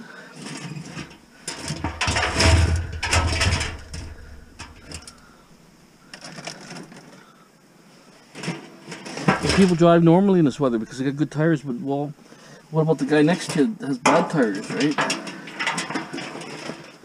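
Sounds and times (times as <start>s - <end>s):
wire rustling in plastic bin: 0.4s - 5.3s, 8.4s - 11.0s, 14.3s - 17.0s.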